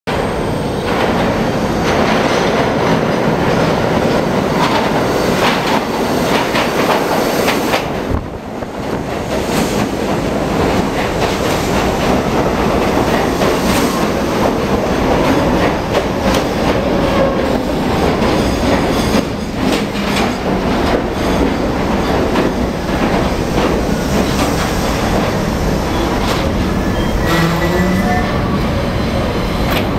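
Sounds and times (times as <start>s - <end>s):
subway train rumble: 0.0s - 29.9s
train wheels clattering over rail joints: 0.8s - 8.2s, 8.8s - 26.8s
train braking whine: 24.8s - 29.2s.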